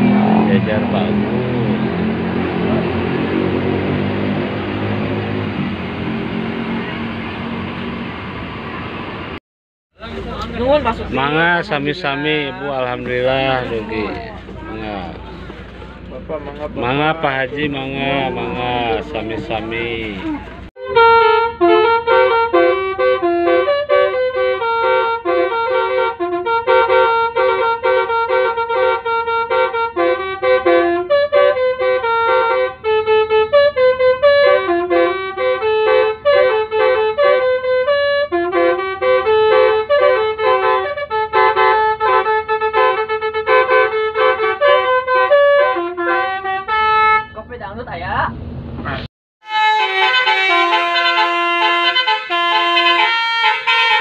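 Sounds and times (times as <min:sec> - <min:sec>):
bus horn tooting a melody: 0:10.9 - 0:15.4, 0:16.8 - 0:47.5, 0:49.4 - 0:54.0.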